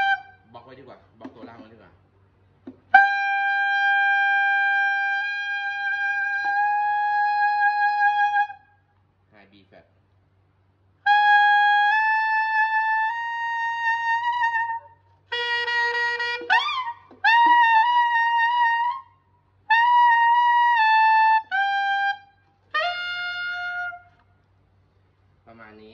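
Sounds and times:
high saxophone notes: 0:00.0 - 0:00.4, 0:11.0 - 0:19.1, 0:19.7 - 0:24.2.

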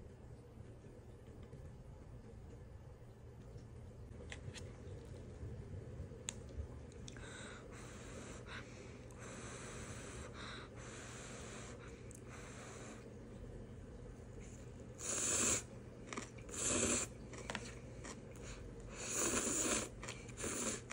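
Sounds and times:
soft hissing of noodles: 0:14.5 - 0:15.7.

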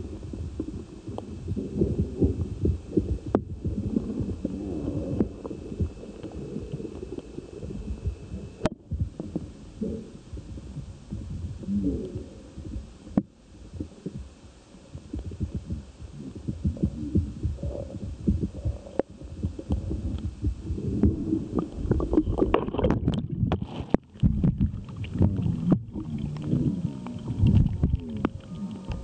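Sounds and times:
underwater thumping rumble: 0:00.0 - 0:09.6, 0:14.9 - 0:29.0
water splashing and dripping: 0:21.0 - 0:29.0.

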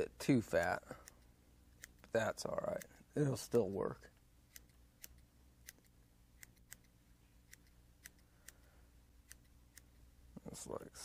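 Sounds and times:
small scissors snipping yarn: 0:04.5 - 0:06.9, 0:09.2 - 0:10.0.

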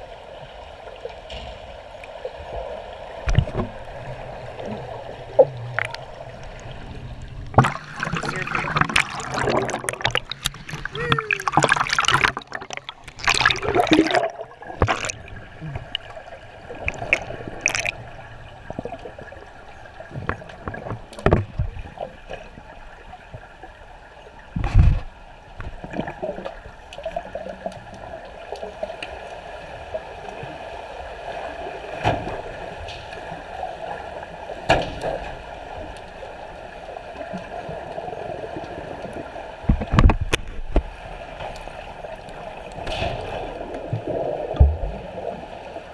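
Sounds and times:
pool water splashing and gurgling: 0:00.0 - 0:45.9
loud water splashes: 0:07.4 - 0:18.1.

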